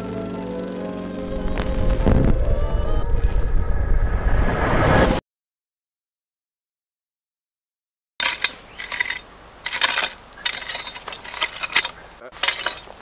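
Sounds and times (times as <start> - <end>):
shovel scraping gravelly dirt: 8.2 - 13.0.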